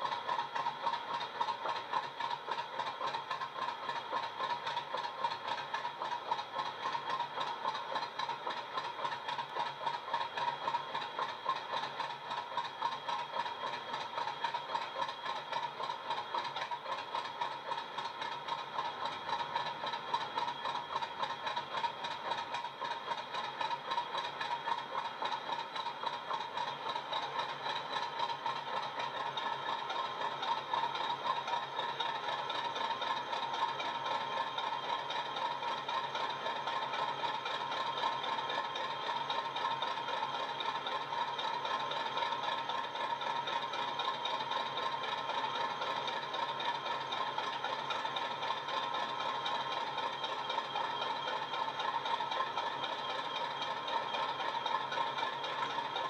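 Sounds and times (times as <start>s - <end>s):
diesel engine sound through small speaker: 0.0s - 56.0s.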